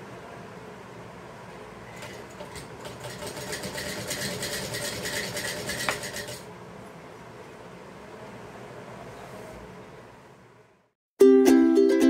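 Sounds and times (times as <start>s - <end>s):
sewing machine clatter: 2.0s - 6.5s.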